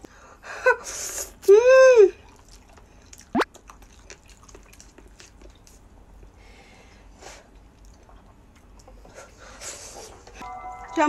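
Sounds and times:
faint chewing: 0:02.2 - 0:06.4.

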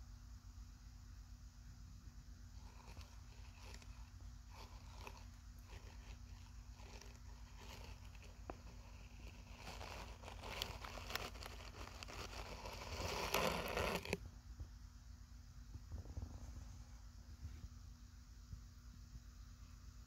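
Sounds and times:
dry bedding rustling: 0:02.6 - 0:14.2.

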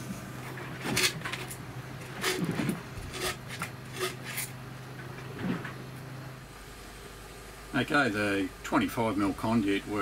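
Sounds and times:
steady low hum: 0:00.0 - 0:10.0
short scrapes and knocks: 0:00.5 - 0:05.8.

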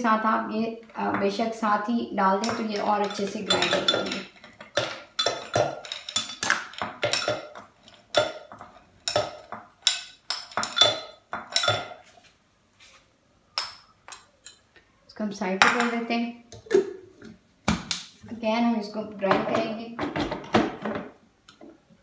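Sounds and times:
spoon clinking against ceramic bowl: 0:02.4 - 0:12.0.

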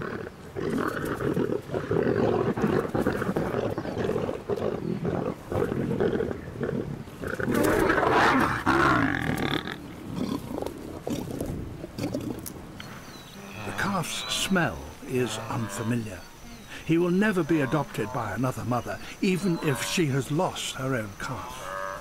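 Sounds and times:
lions growling and snarling: 0:00.0 - 0:12.6.

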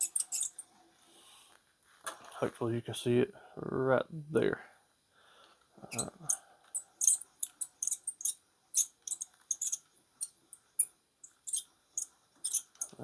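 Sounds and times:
metallic tool clicks: 0:07.0 - 0:09.8.

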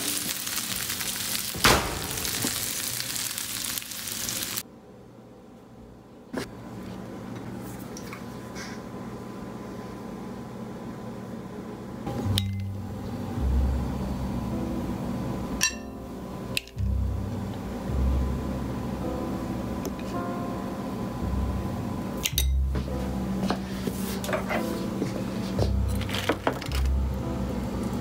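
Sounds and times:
kitchen appliance humming: 0:00.0 - 0:04.6.

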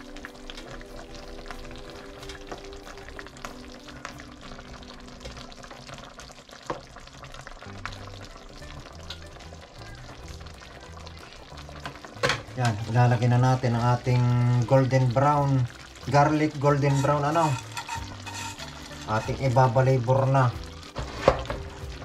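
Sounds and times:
shrimp sizzling in a frying pan: 0:00.0 - 0:22.0
soft background music: 0:00.0 - 0:22.0
spoon and spatula scraping pan: 0:16.7 - 0:19.9, 0:20.9 - 0:21.7.

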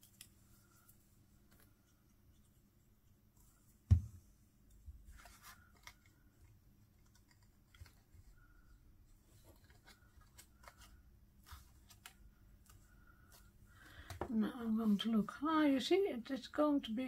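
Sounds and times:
dull thump on table: 0:03.9 - 0:04.2
light rustling of cardstock: 0:04.8 - 0:15.3.

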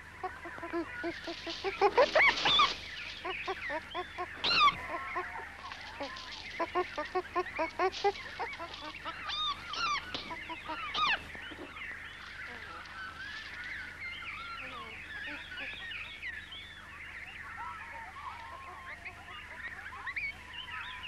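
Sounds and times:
loud swooping bird calls: 0:00.0 - 0:15.8
birds chirping and whistling: 0:00.0 - 0:21.0.

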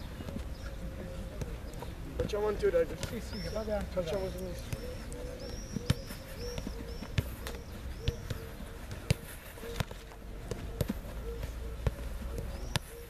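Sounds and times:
football kick thuds: 0:05.5 - 0:12.9.

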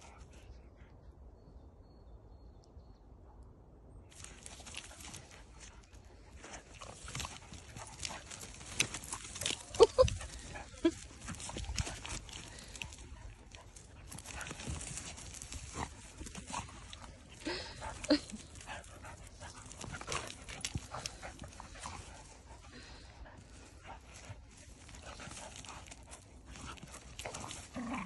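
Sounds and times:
dog noises: 0:04.2 - 0:28.0
dogs scuffling in leaves: 0:04.2 - 0:28.0.

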